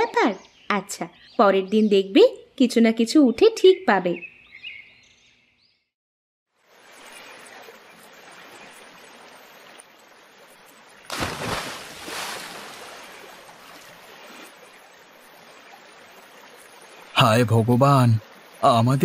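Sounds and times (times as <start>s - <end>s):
water lapping: 6.8s - 17.1s
net splashing into water: 11.1s - 14.6s.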